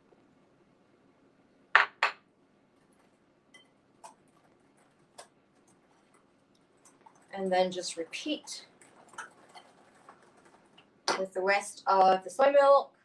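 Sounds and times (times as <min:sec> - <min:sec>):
ceramic bowl knocking on counter: 0:01.8 - 0:02.2.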